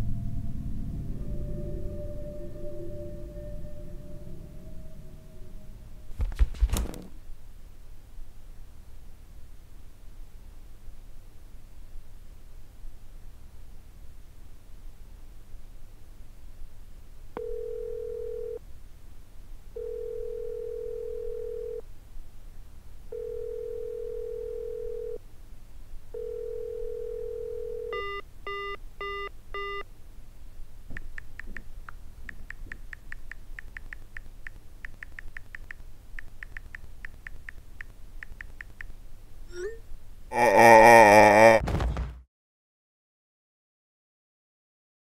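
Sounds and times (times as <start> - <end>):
phone ringback tones: 17.4 - 18.6, 19.8 - 21.8, 23.1 - 25.2, 26.2 - 29.8
call end beeps: 27.9 - 29.8
keyboard clicks: 30.9 - 38.9.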